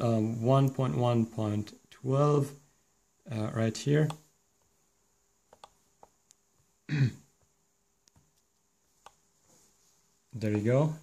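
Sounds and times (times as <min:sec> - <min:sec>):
computer mouse clicks: 0:04.0 - 0:04.7, 0:05.5 - 0:06.4, 0:07.4 - 0:09.2.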